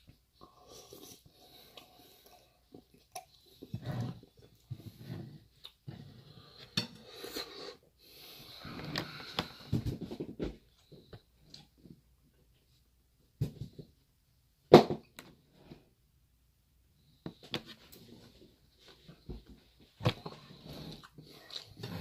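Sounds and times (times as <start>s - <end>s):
breathing: 6.0s - 10.0s
close chewing: 20.2s - 22.0s.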